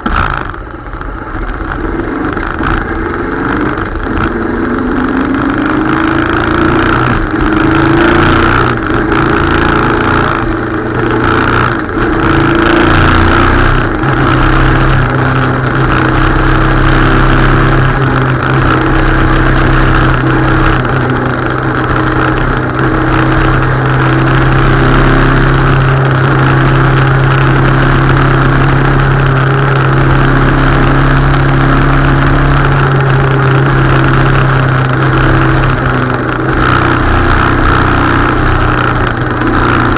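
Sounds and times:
motorcycle engine: 0.0s - 39.9s
wind and road noise: 0.0s - 39.9s.

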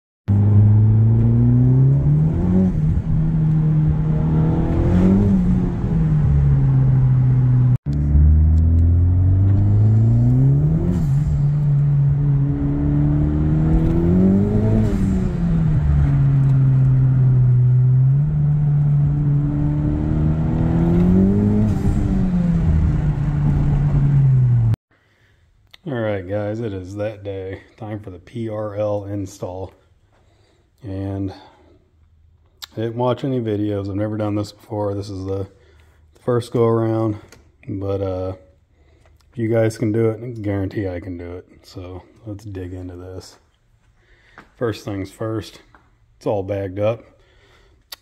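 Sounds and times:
car engine accelerating hard: 0.3s - 24.8s.

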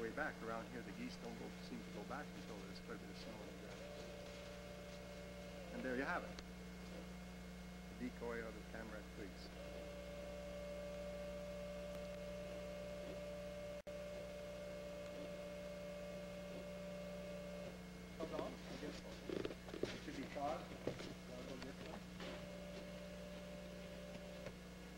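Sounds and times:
low mains hum: 0.0s - 24.9s
steady electronic tone: 9.6s - 17.8s.

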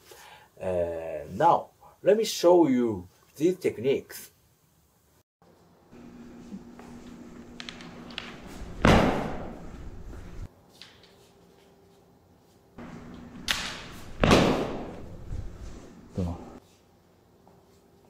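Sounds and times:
bamboo swords clacking: 13.4s - 15.0s
loud sword strike with echo: 13.4s - 15.0s.

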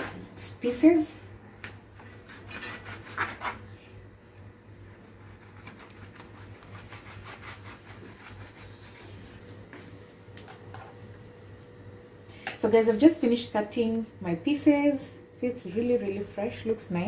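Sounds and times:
knife sawing on cutting board: 2.3s - 3.6s, 5.4s - 9.3s.

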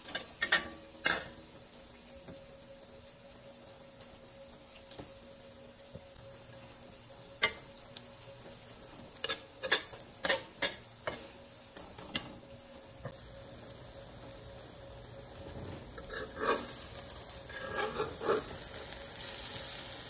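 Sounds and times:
omelette sizzling faintly: 0.0s - 20.0s
metal spatula scraping a wok: 16.0s - 18.8s.

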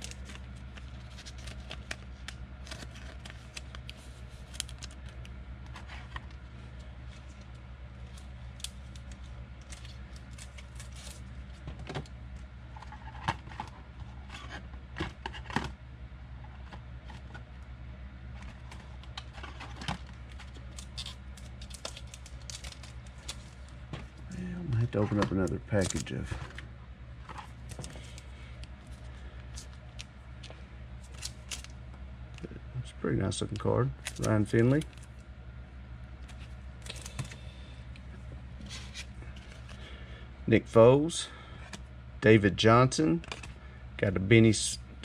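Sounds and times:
trading cards clicking and rustling: 0.0s - 7.4s, 18.4s - 24.1s, 24.8s - 26.6s, 33.4s - 35.1s, 36.2s - 37.4s
steady low hum: 0.0s - 45.0s.

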